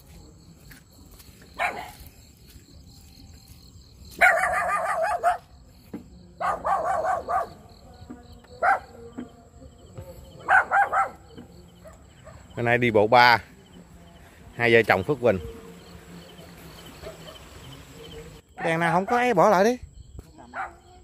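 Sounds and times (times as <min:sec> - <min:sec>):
insects whining: 0:00.0 - 0:21.0
dog barking: 0:01.6 - 0:02.0, 0:04.2 - 0:05.5, 0:06.4 - 0:07.7, 0:08.6 - 0:09.0, 0:10.4 - 0:12.6, 0:16.9 - 0:17.7, 0:20.5 - 0:21.0.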